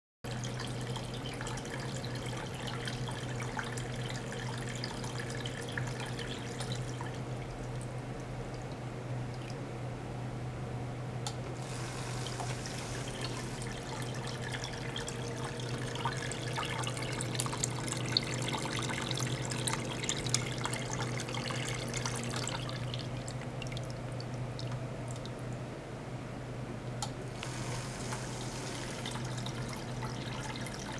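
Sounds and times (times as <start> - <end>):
small pump humming: 0.3 - 30.9.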